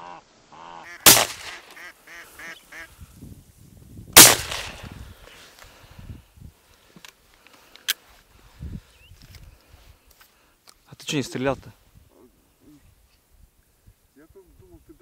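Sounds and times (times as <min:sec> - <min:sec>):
ducks quacking: 0:00.0 - 0:03.0
shotgun shots: 0:01.0 - 0:01.8, 0:04.2 - 0:04.9.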